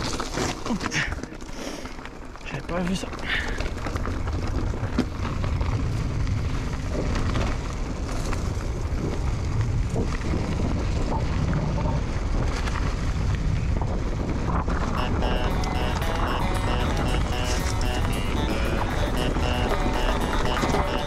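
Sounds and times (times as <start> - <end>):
mountain bike rumbling and rattling: 0.0 - 21.0
wind rushing over microphone: 5.5 - 15.0.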